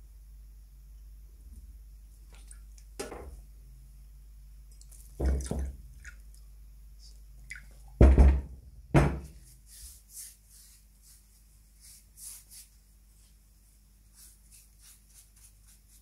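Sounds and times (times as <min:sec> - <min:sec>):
objects knocking on wooden workbench: 0:08.0 - 0:09.3.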